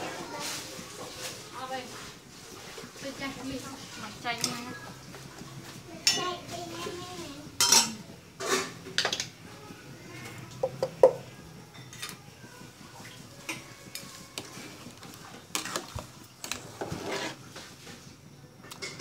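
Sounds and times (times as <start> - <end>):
metal ladle stirring in pot: 13.4 - 17.4.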